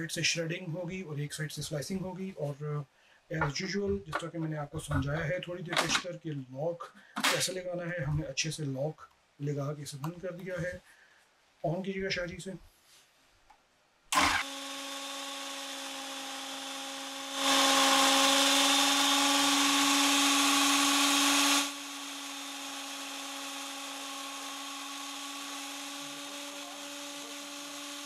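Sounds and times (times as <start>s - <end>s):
food processor motor humming: 14.1s - 28.0s.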